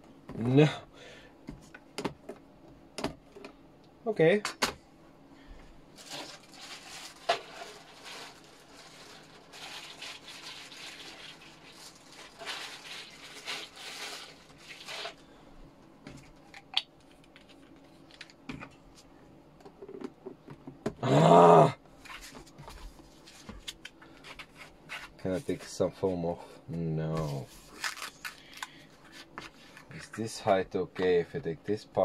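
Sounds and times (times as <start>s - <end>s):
plastic packaging rustling: 5.9s - 15.2s, 27.2s - 30.0s.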